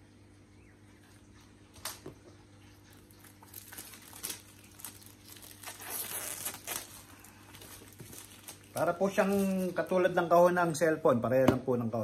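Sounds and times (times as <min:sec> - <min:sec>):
low steady hum: 0:00.0 - 0:12.0
plastic shrink-wrap crinkling: 0:02.8 - 0:10.2.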